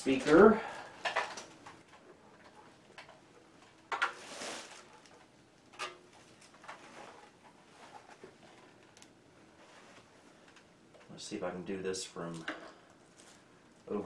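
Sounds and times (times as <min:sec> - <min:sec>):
handling rustles: 0:03.6 - 0:11.2, 0:12.2 - 0:14.0.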